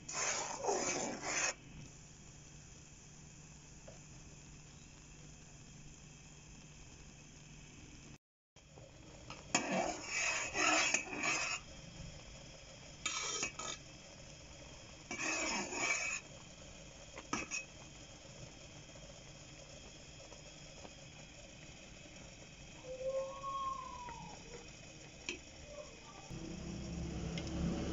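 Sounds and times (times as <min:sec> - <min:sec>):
marmalade boiling: 0:00.0 - 0:27.9
spoon scraping pot bottom: 0:00.1 - 0:01.6, 0:09.5 - 0:11.6, 0:13.1 - 0:13.8, 0:15.1 - 0:16.3, 0:17.2 - 0:17.8.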